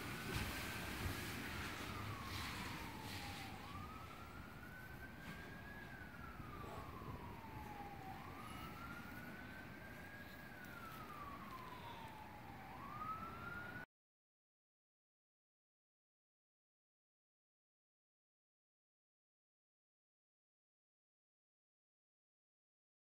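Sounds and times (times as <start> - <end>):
faint siren wailing: 0.0 - 13.9.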